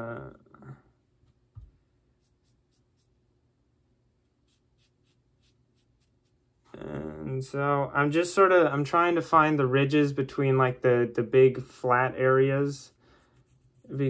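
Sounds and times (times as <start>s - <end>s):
marker scratching on tape: 4.4s - 6.4s.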